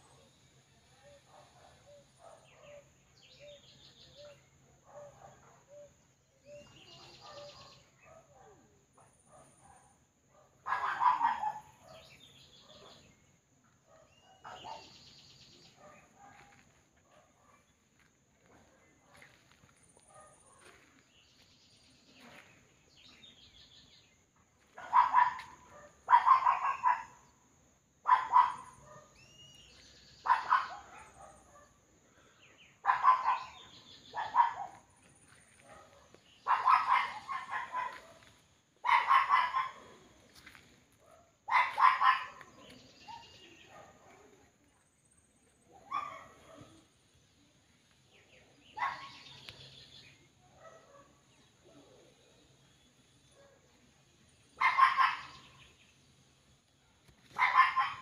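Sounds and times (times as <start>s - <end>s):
bird chirps: 0.9s - 8.2s, 28.1s - 31.4s
dog barking: 1.0s - 3.0s, 4.2s - 13.2s, 13.8s - 15.0s, 15.7s - 17.7s, 18.4s - 21.0s, 24.7s - 27.4s, 28.0s - 29.2s, 30.2s - 32.0s, 32.8s - 44.5s, 45.7s - 46.9s, 48.7s - 49.6s, 50.4s - 52.4s, 53.2s - 53.8s, 54.6s - 55.7s, 56.9s - 58.0s.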